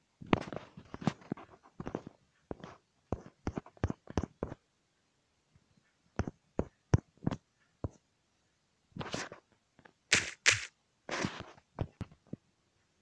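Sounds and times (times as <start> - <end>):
short sharp taps: 10.1 - 10.7.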